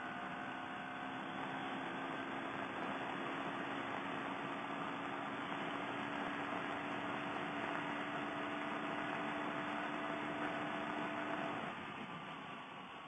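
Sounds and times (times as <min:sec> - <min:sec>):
motorcycle engine cruising: 0:00.0 - 0:11.7.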